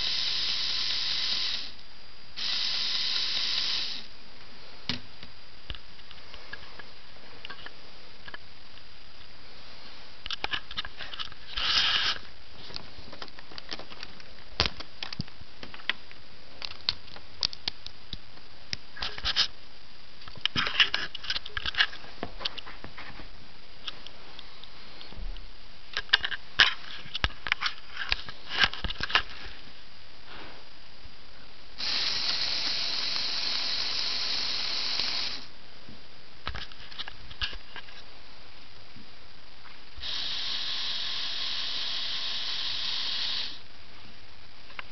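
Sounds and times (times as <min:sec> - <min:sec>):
steady hiss: 0:00.0 - 0:44.9.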